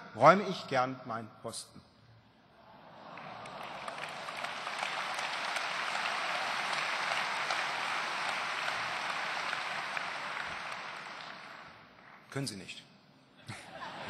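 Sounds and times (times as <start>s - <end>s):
large audience applauding: 2.8s - 12.2s.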